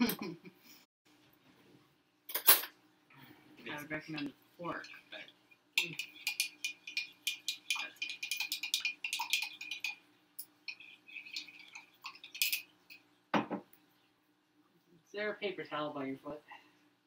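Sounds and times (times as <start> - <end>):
metal utensil scraping a pot: 5.8 - 10.0, 10.7 - 13.0.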